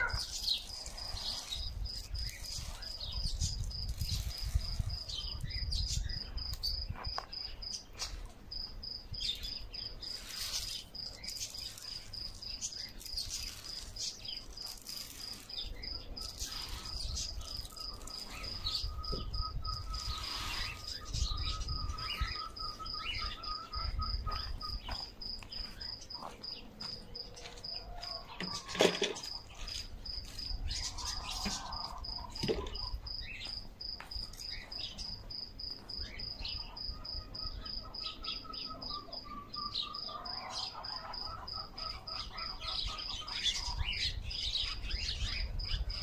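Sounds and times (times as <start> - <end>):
insect trilling: 0.0 - 7.8, 8.5 - 26.3.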